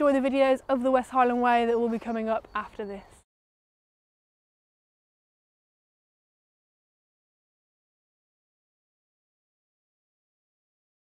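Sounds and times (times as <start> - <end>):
woman speaking: 0.0 - 3.2.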